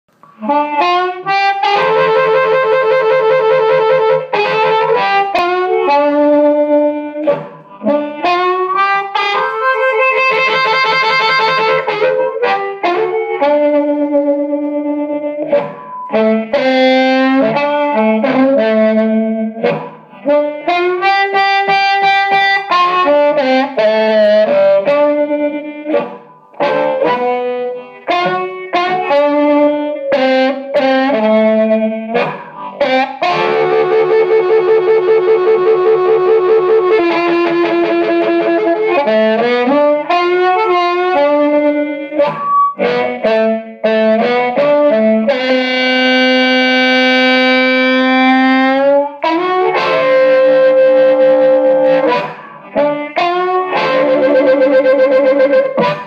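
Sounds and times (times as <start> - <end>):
electric guitar sliding notes: 0.1 - 56.0.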